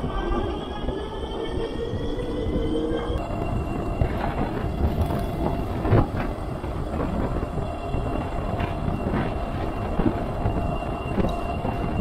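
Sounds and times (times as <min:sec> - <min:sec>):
wind and tyres rumbling: 0:00.0 - 0:12.0.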